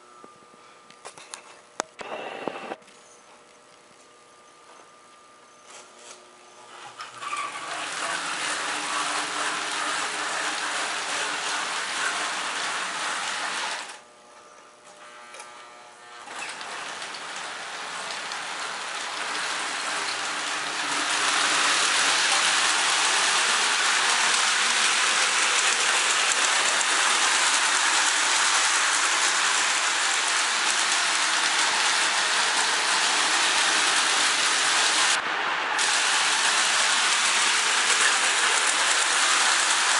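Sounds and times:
toy train motor whir and rattle: 5.7s - 14.0s, 16.2s - 35.2s, 35.8s - 39.9s.

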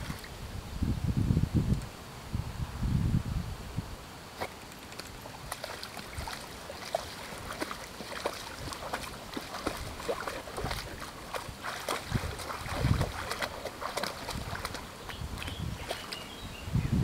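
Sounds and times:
dog splashing through water: 4.4s - 16.3s.

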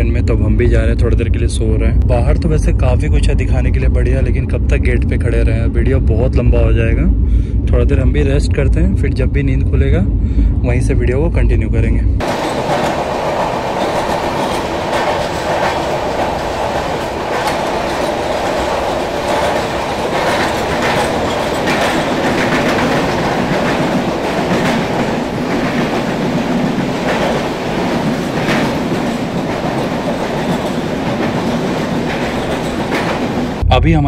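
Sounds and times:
wheels clickety-clack on rail joints: 12.2s - 33.6s
train wheels on rail: 12.2s - 33.7s.

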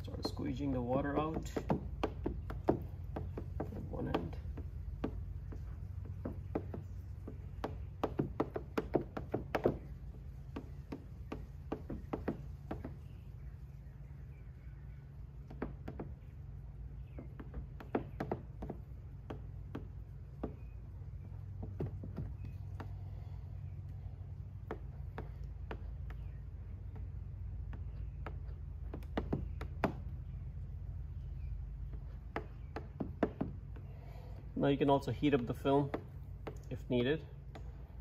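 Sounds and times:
steady low hum: 0.0s - 38.0s
squeegee tapping on wet film: 0.5s - 13.2s.

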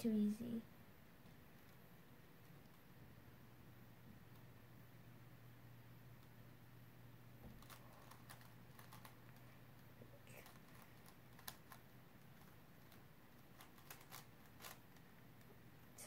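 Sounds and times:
puzzle cube clicking: 7.6s - 9.4s, 12.4s - 14.8s.

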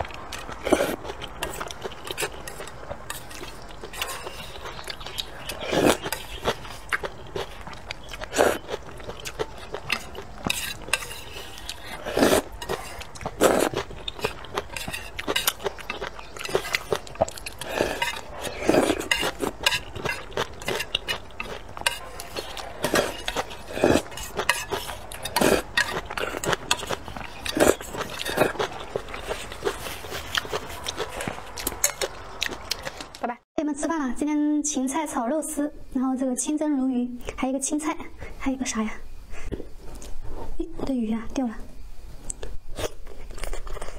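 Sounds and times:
slurping and chewing noodles: 0.0s - 33.2s, 42.3s - 43.9s.

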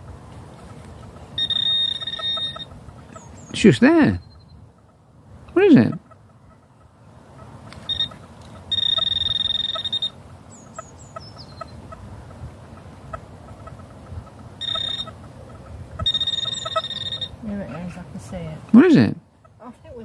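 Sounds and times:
small bird chirping: 1.3s - 3.6s, 4.2s - 4.7s, 7.8s - 11.9s, 14.6s - 15.2s, 16.0s - 17.8s
metal detector high-pitched tone: 1.4s - 2.7s, 7.9s - 10.2s, 14.6s - 15.1s, 16.0s - 17.4s.

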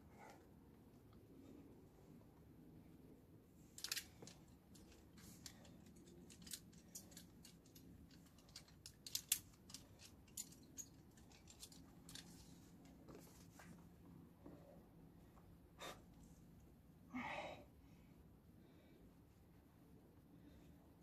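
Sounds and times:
climbing gear clicking and clinking: 3.6s - 13.1s.

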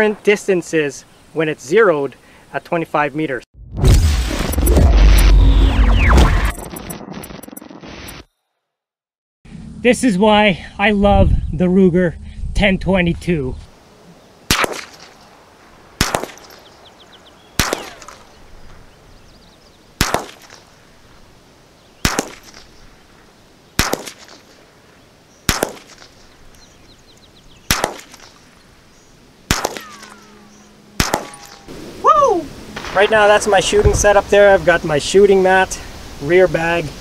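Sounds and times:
rifle shots with echo: 14.5s - 15.0s, 16.0s - 16.6s, 17.6s - 18.3s, 20.0s - 20.6s, 22.0s - 22.5s, 23.8s - 24.4s, 25.5s - 26.0s, 27.7s - 28.3s, 29.5s - 30.2s, 31.0s - 31.7s.

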